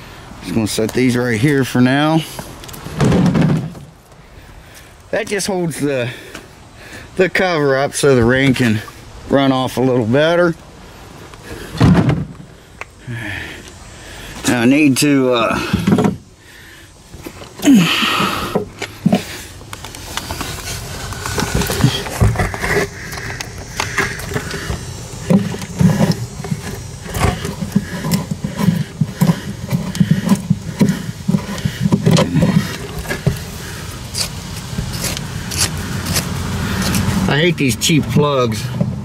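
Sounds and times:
metal hardware clicking and scraping: 18.5 - 33.5, 34.1 - 37.2.

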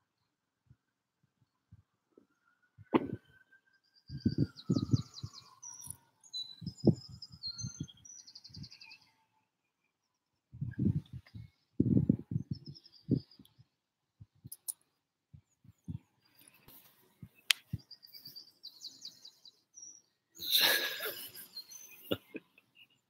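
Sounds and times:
birds chirping: 1.3 - 23.0
thumps on microphone: 2.8 - 3.2
bird trill: 3.2 - 9.4, 12.3 - 13.7, 17.4 - 23.0.

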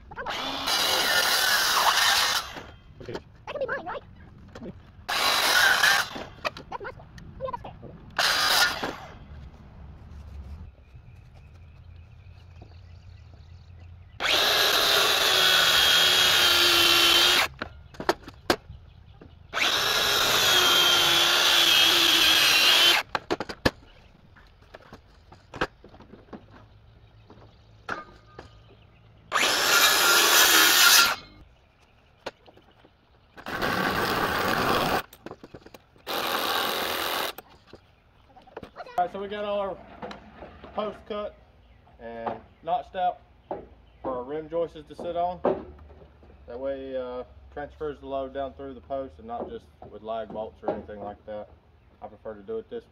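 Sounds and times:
circular saw cutting wood: 0.2 - 2.7, 5.1 - 6.4, 8.2 - 9.2, 14.2 - 17.6, 19.5 - 23.1, 29.3 - 31.4, 33.4 - 35.1, 36.0 - 37.4
cordless power tool bursts: 0.3 - 2.7, 5.1 - 6.4, 8.2 - 9.1, 14.2 - 17.6, 19.5 - 23.1, 29.3 - 31.3, 33.4 - 35.1, 36.0 - 37.4.

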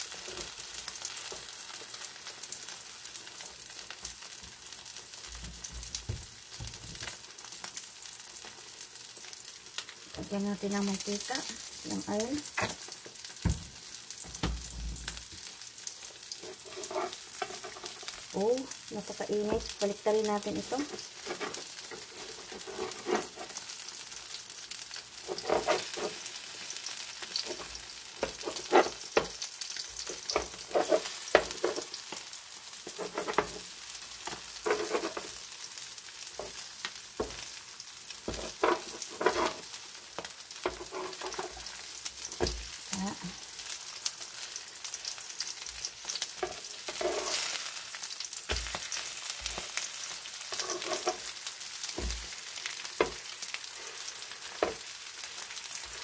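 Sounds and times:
food sizzling in hot oil: 0.0 - 56.0
metal spatula scraping pan: 16.3 - 18.1, 20.6 - 23.7, 25.2 - 26.4, 27.4 - 29.3, 30.0 - 32.0, 32.8 - 33.7, 34.3 - 35.4, 38.3 - 39.7, 40.6 - 41.8, 46.4 - 47.7, 49.4 - 51.3.

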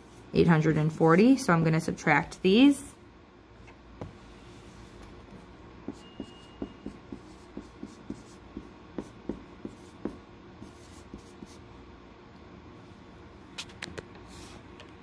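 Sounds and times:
marker writing on whiteboard: 5.8 - 11.6.

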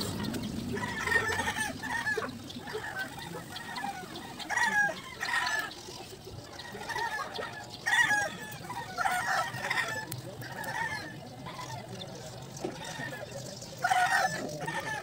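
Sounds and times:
chickens crowing and clucking: 0.0 - 15.0.

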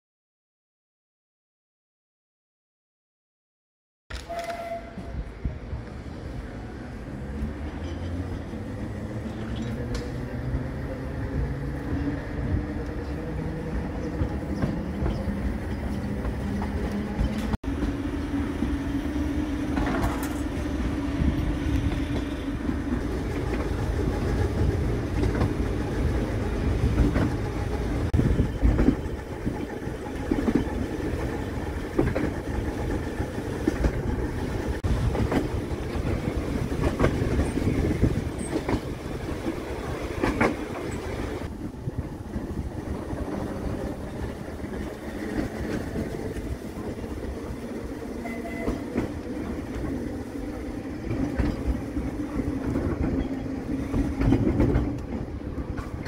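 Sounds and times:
tram wheels rumbling on track: 4.1 - 56.0
wheels clicking over rail joints: 19.6 - 20.6, 21.7 - 56.0.

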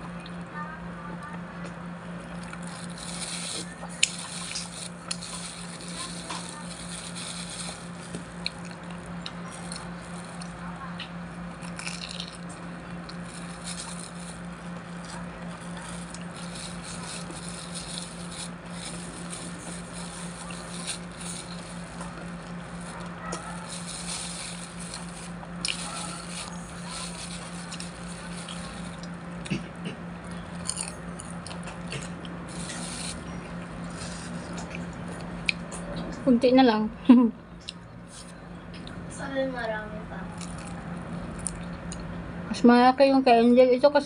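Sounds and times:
steady low hum: 0.0 - 44.0
crisp food bitten and chewed: 2.2 - 35.8, 40.3 - 42.1
plastic bag crinkling: 2.4 - 29.4, 30.2 - 34.6, 40.4 - 40.8.

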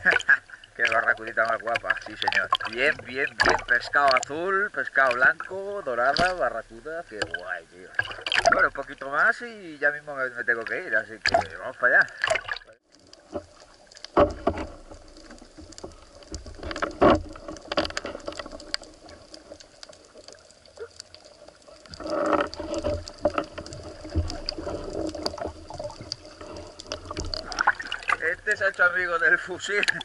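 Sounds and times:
faint clicks and crackles: 0.0 - 9.4, 10.2 - 30.0
muffled underwater water movement: 0.0 - 30.0
water rushing: 0.0 - 30.0
dull knocks: 14.1 - 15.0.

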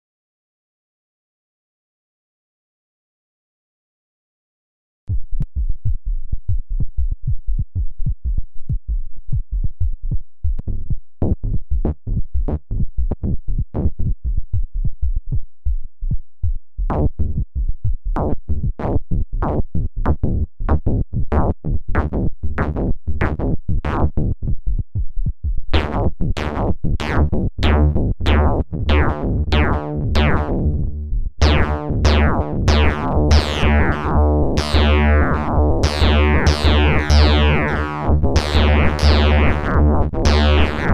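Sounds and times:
low synth bass: 16.8 - 40.9
crunchy synthesizer percussive notes: 25.8 - 40.9.

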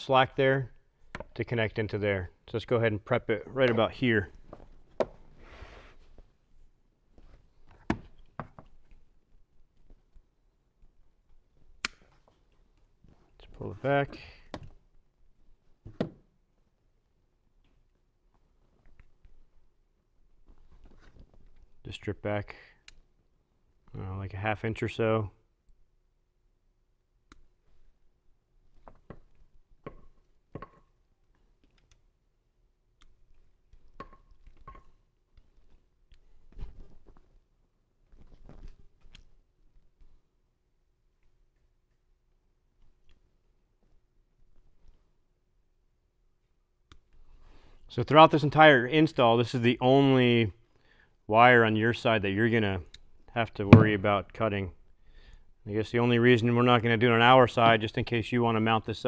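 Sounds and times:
speaker wire being handled: 20.4 - 21.8, 33.1 - 37.4, 38.0 - 39.4.

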